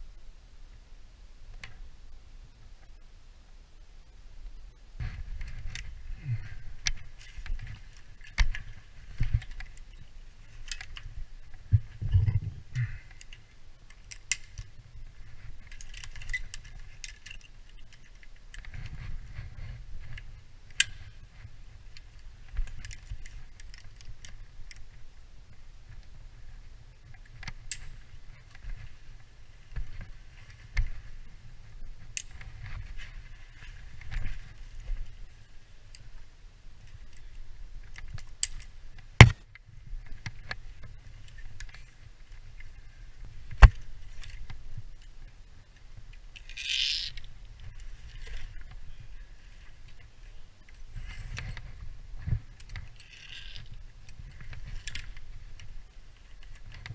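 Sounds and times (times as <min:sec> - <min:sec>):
metal climbing gear clinking: 0:05.4 - 0:11.2, 0:12.0 - 0:24.9, 0:27.1 - 0:31.0, 0:36.8 - 0:38.8, 0:46.4 - 0:56.9.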